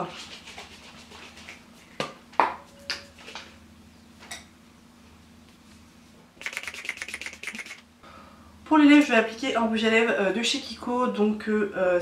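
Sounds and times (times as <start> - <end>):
quick clicks: 6.4 - 7.8.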